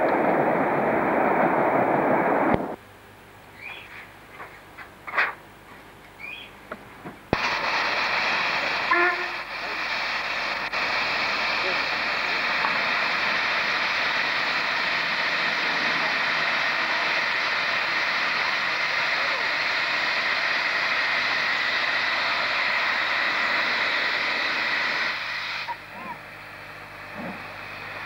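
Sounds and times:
steam safety valves hissing: 0:07.3 - 0:25.9
steam venting from drain cocks: 0:07.3 - 0:28.0.

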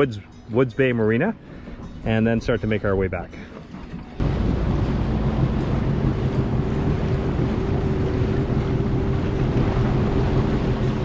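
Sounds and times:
water noise from the hull: 0:03.4 - 0:11.0
personal watercraft engine running: 0:03.5 - 0:11.0
wind buffeting the microphone: 0:04.2 - 0:11.0.

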